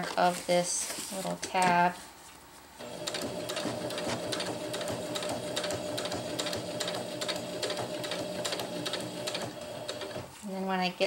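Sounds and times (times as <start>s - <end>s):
sewing machine motor whir: 2.8s - 10.3s.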